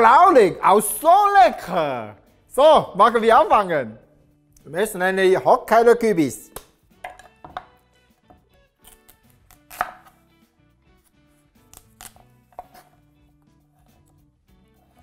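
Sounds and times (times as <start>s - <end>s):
knife cutting pumpkin on board: 8.3s - 10.3s, 11.0s - 14.2s, 14.8s - 15.0s.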